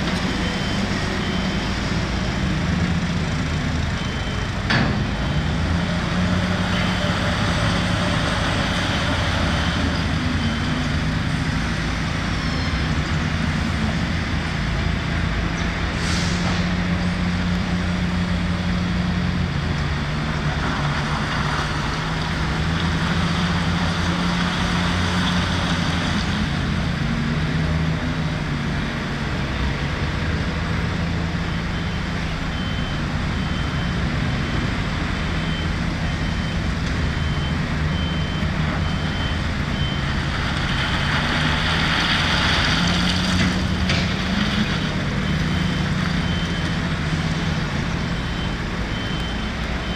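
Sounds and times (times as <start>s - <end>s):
reversing alarm beeping: 0.0s - 2.7s, 3.7s - 11.6s, 31.0s - 40.4s, 44.6s - 49.9s
heavy diesel engines running: 0.0s - 49.9s.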